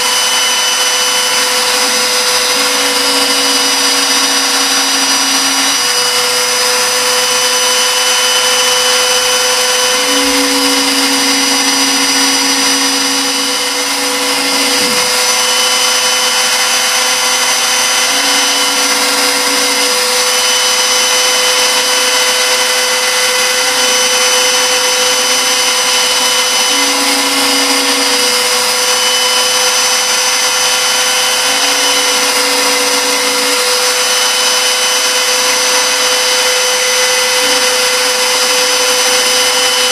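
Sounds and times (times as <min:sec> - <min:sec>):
milling machine cutting metal: 0:00.0 - 0:39.9
low machine tone: 0:00.8 - 0:06.3, 0:09.8 - 0:15.6, 0:17.6 - 0:28.8.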